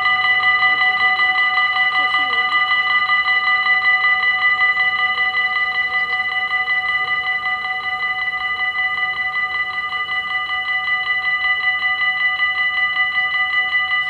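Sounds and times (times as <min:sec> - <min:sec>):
level crossing warning bells: 0:00.0 - 0:14.0.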